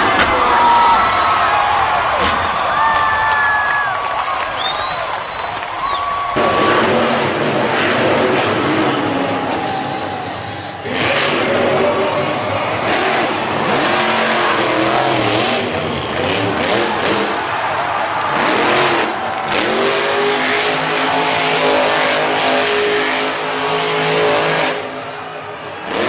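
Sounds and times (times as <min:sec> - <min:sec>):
monster truck engine revving: 0:06.3 - 0:26.0.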